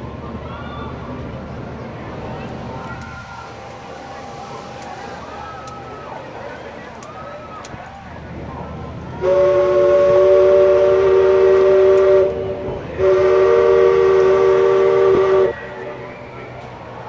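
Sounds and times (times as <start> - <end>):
steam chime whistle blasts: 13.0 - 16.5.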